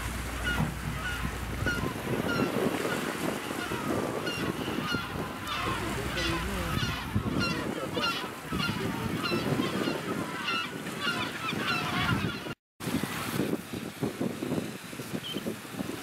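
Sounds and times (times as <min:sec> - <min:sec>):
waves washing: 0:00.0 - 0:12.2, 0:12.8 - 0:16.0
wind: 0:00.0 - 0:16.0
penguins honking: 0:00.4 - 0:12.5.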